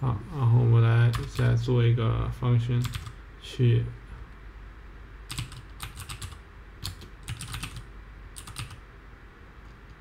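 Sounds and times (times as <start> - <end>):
typing on a computer keyboard: 2.8 - 3.2, 5.3 - 8.8.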